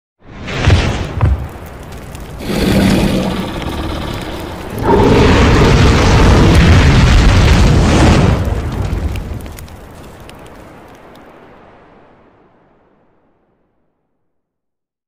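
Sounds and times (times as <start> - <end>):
booming fire blast: 0.3 - 10.9
rumbling swell: 2.4 - 8.6.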